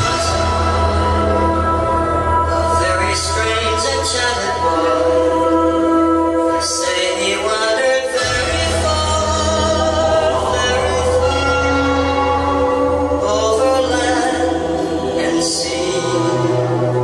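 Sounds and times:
sustained low bass drone: 0.0 - 6.7
slow ambient choir-like tones: 0.0 - 17.0.

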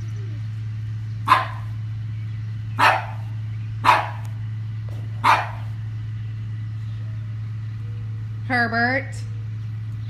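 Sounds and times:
steady low hum: 0.0 - 10.0
dog barking: 1.2 - 1.8, 2.8 - 4.4, 5.2 - 5.8.

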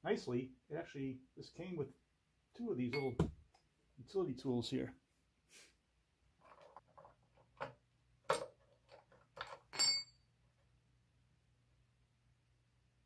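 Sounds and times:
metal tools clinking: 2.9 - 3.2, 8.3 - 10.2.

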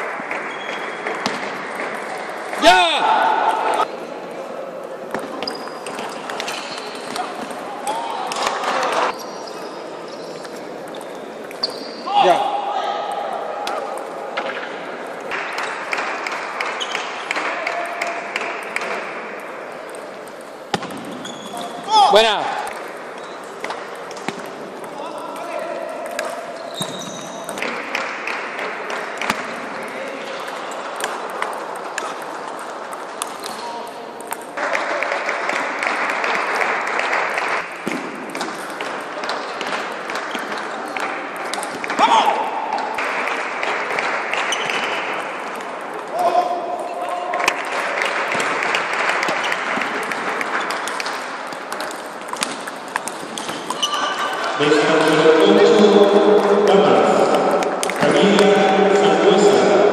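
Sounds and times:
sneakers squeaking on floor: 0.3 - 1.4, 5.2 - 7.4, 8.4 - 12.2, 16.7 - 17.2, 20.7 - 22.0, 23.1 - 24.4, 26.4 - 27.7, 44.4 - 45.0, 52.4 - 55.0
table tennis balls clicking: 22.6 - 42.0, 47.3 - 56.6
steady rushing hall noise: 27.6 - 59.9
applause in a large hall: 34.6 - 37.7, 47.4 - 50.6.

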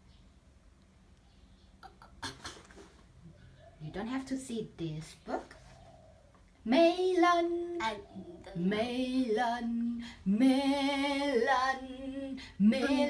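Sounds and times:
child singing: 6.7 - 13.0.

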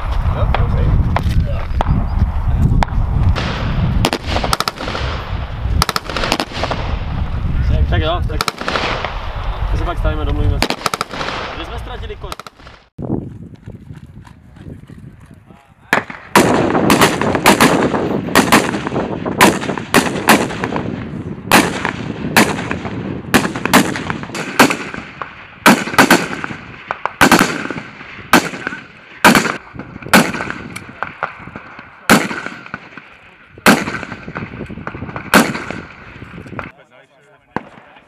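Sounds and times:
rifle shots with echo: 2.8 - 7.1, 8.3 - 9.4, 10.4 - 12.9, 15.9 - 36.7, 37.5 - 38.0.

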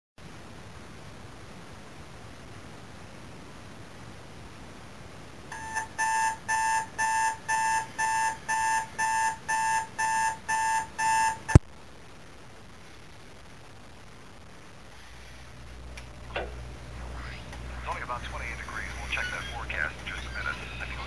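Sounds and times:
alarm clock beeping: 5.5 - 11.6.

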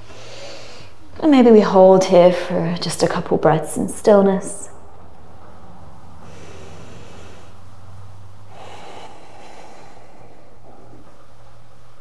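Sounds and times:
woman breathing slowly: 0.0 - 1.0, 5.9 - 12.0
steady low hum: 0.0 - 12.0.

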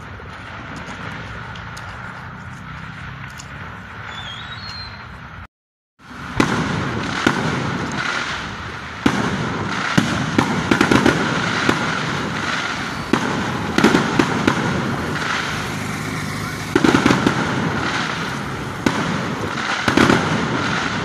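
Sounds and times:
fireworks crackling: 0.0 - 21.0
fireworks sharp bangs: 0.0 - 21.0.

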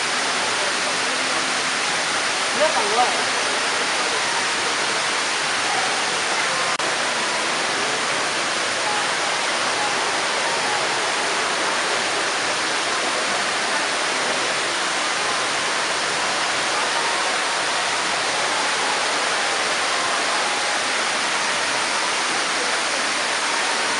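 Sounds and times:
rush of falling water: 0.0 - 23.9.

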